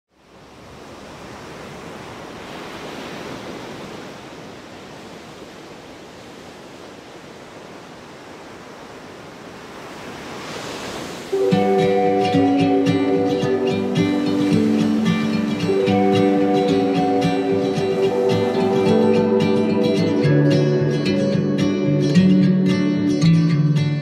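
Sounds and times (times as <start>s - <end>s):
surf washing onto beach: 0.2s - 21.8s
plucked-string music: 11.3s - 24.0s.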